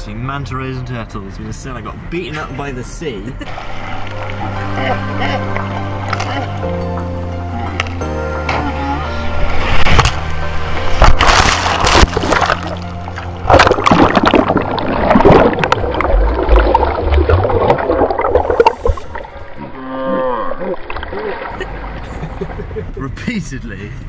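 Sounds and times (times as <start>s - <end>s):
background music: 0.0s - 19.3s
waves breaking and splashing: 3.4s - 6.6s, 9.1s - 19.8s, 20.8s - 22.9s.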